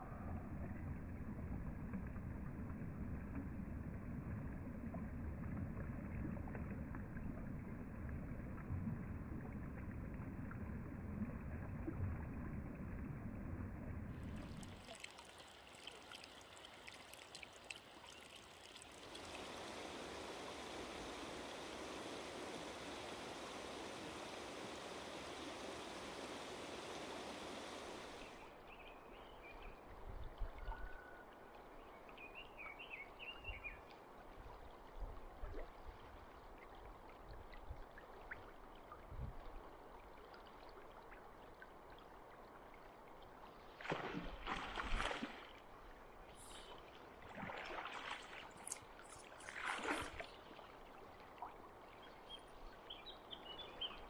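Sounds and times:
water splashes: 0:14.1 - 0:28.6, 0:35.3 - 0:54.0
river water rushing: 0:14.3 - 0:28.4
faint bird chirps: 0:28.1 - 0:33.9.

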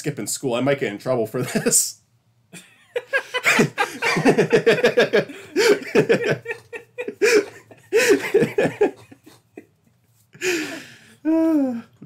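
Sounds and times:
person laughing: 0:02.6 - 0:09.8
breathy exhale: 0:10.4 - 0:11.4.

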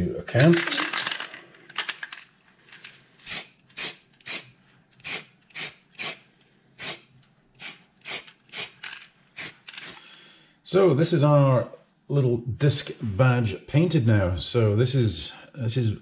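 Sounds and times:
spray paint can hissing: 0:03.3 - 0:06.2, 0:06.8 - 0:08.8, 0:09.4 - 0:10.0.

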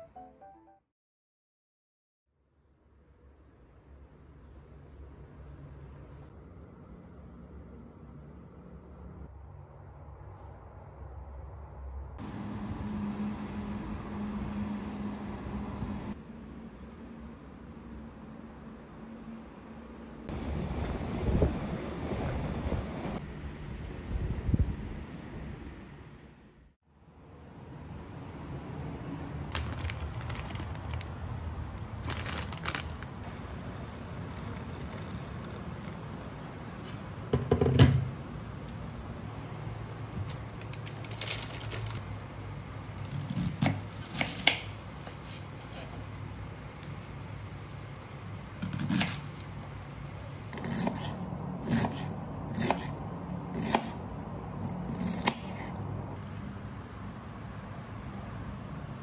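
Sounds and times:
plastic packet crinkling: 0:29.5 - 0:31.2, 0:31.8 - 0:36.1, 0:40.6 - 0:42.0
water poured into saucepan: 0:33.4 - 0:36.1
knife crunching through cabbage: 0:48.6 - 0:49.5, 0:50.5 - 0:53.0.

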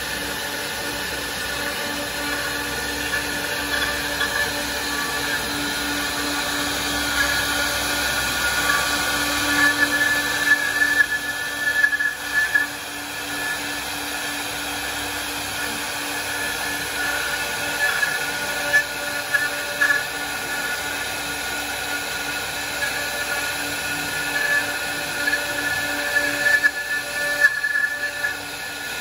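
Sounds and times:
cnc router spindle whine: 0:00.0 - 0:29.0
router cutting wood: 0:00.0 - 0:29.0.

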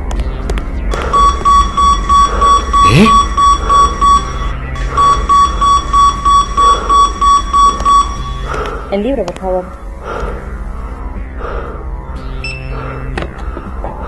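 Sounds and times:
security gate alarm beeping: 0:01.1 - 0:08.5.

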